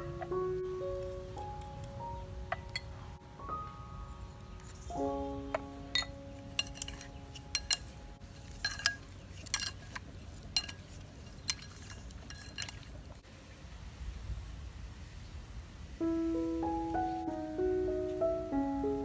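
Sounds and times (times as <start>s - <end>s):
chopsticks clinking against bowl: 5.9s - 13.1s.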